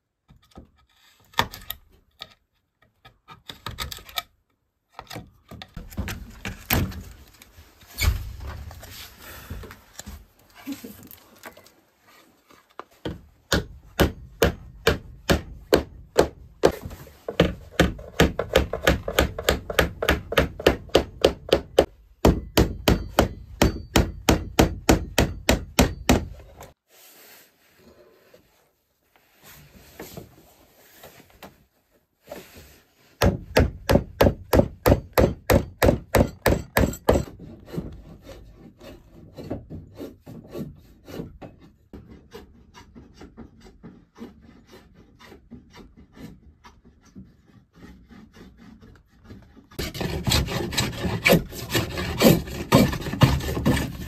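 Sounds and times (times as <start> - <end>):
wood scraping: 5.6 - 15.0, 37.1 - 54.0
hammer driving nails into wood: 13.1 - 26.7, 33.2 - 37.4.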